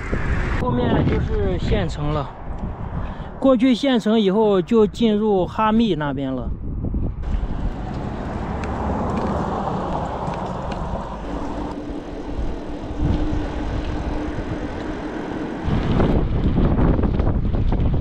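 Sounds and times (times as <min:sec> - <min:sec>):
passing traffic hum: 0:00.0 - 0:00.7, 0:01.3 - 0:05.5, 0:06.6 - 0:18.0
wind buffeting microphone: 0:00.0 - 0:03.9, 0:04.5 - 0:18.0
bicycle road noise: 0:06.8 - 0:18.0.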